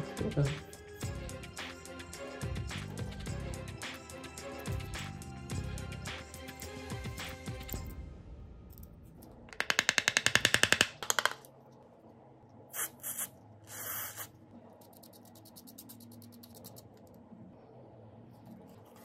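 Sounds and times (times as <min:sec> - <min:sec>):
spray can hissing: 0:12.7 - 0:14.3
small brush scrubbing: 0:12.7 - 0:17.0
tweezers scraping and clicking: 0:14.8 - 0:17.1.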